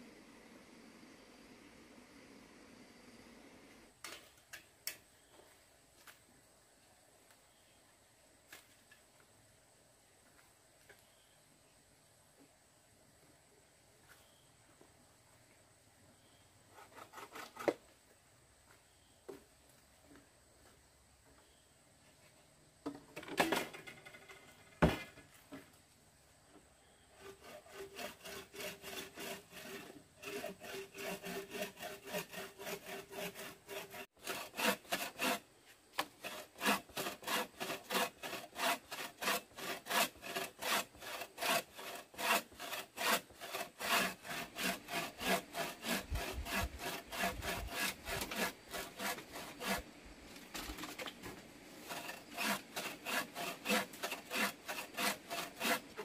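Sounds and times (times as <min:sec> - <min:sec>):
hand saw cutting wood: 0:16.7 - 0:17.8, 0:27.1 - 0:56.0.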